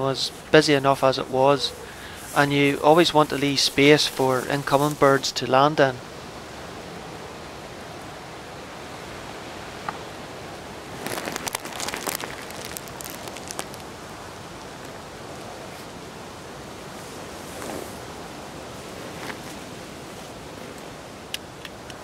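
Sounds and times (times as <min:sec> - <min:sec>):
crackling and buffeting: 0:09.8 - 0:16.0.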